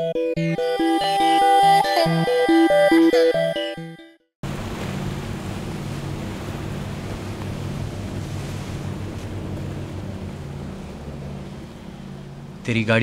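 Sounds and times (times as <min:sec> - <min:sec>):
water washing: 0:04.4 - 0:13.0
wind: 0:04.4 - 0:13.0.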